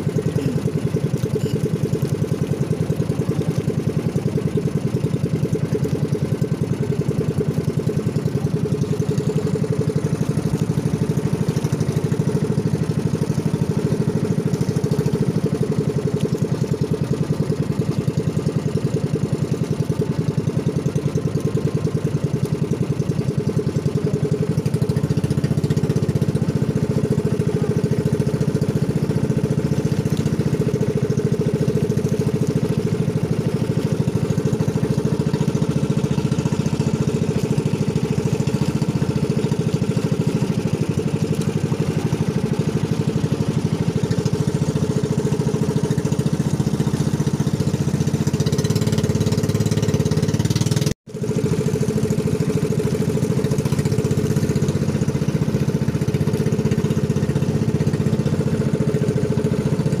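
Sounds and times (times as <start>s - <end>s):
boat engine running: 0.0s - 60.0s.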